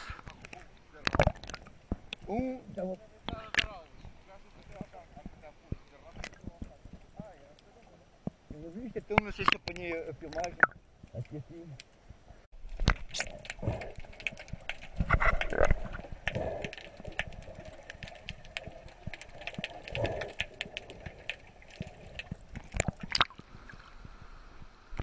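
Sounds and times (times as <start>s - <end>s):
underwater clicking crackle: 0.1s - 2.3s, 3.2s - 12.0s, 12.6s - 24.2s
bubbling and gurgling: 1.0s - 1.9s, 9.2s - 10.8s, 12.6s - 24.3s
sharp water splashes: 12.6s - 23.9s.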